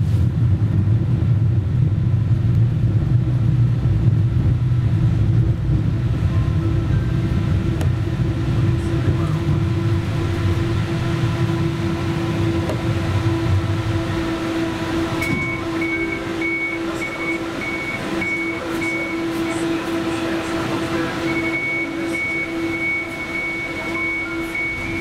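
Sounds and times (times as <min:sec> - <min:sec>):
electrical hum: 0:00.0 - 0:25.0
tram wheel and motor rumble: 0:00.0 - 0:25.0
high electronic beeps: 0:15.2 - 0:20.4, 0:21.0 - 0:25.0.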